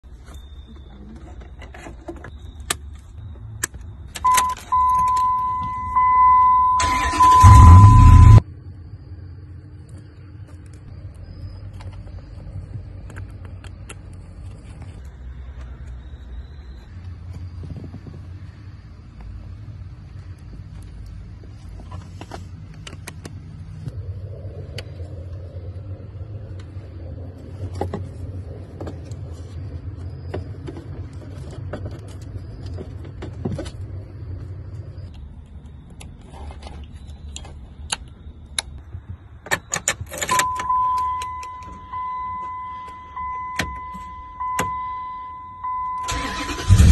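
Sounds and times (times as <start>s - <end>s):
steady electronic beep: 4.2s - 8.4s, 40.3s - 46.9s
low hum: 4.2s - 39.0s.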